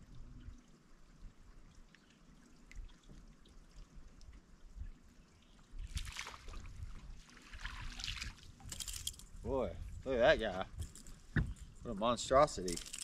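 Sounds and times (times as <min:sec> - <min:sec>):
small waves lapping against hull: 0:00.0 - 0:13.0
wind rumble: 0:05.8 - 0:13.0
splash on water surface: 0:05.9 - 0:09.2.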